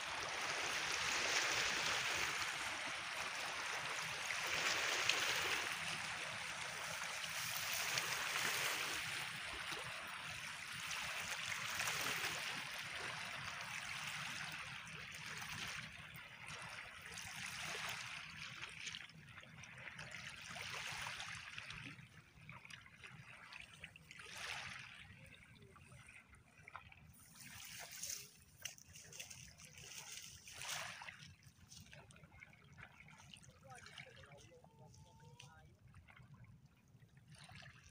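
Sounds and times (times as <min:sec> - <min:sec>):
water washing over pebbles: 0:00.0 - 0:09.8.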